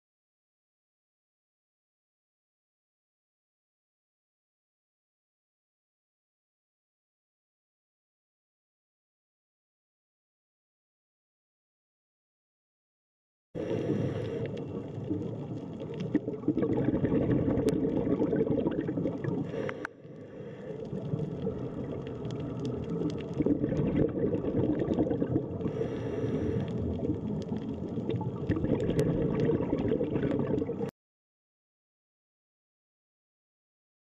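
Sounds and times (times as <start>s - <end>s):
underwater bubbling and gurgling: 13.6s - 30.9s.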